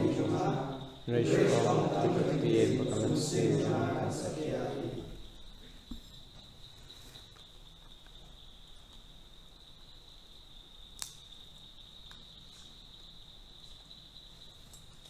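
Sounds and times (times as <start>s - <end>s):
sharp click: 11.0s - 11.2s.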